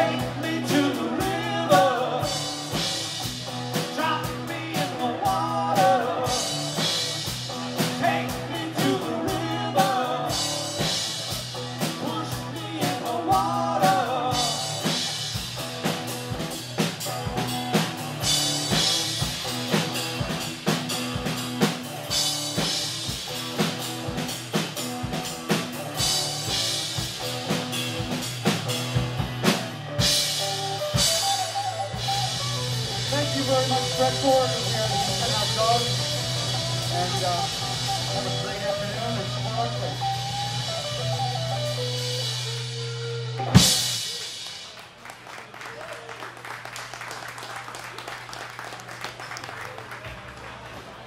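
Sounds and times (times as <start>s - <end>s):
man singing lead: 0.0s - 15.2s, 31.9s - 40.6s
rock band playing: 0.0s - 45.0s.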